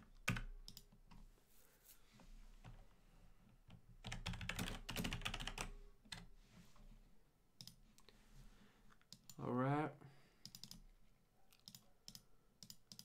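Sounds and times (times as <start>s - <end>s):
computer keyboard typing: 0.2s - 1.0s, 3.7s - 6.3s, 10.4s - 10.8s, 11.5s - 13.0s.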